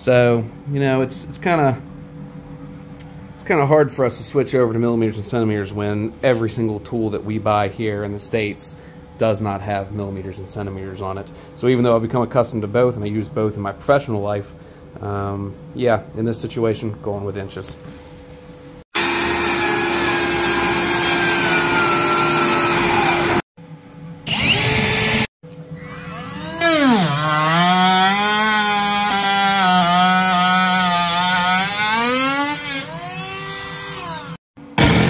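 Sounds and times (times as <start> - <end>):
circular saw cutting plywood: 19.0 - 23.4, 24.2 - 35.0
rotary tool whine cutting plastic: 24.3 - 35.0.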